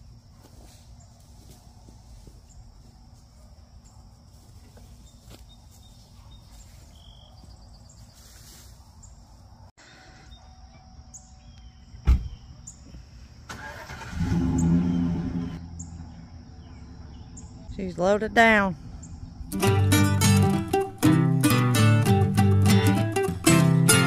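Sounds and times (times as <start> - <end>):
loud thump: 12.0 - 12.4
truck engine cranking and starting: 13.5 - 17.3.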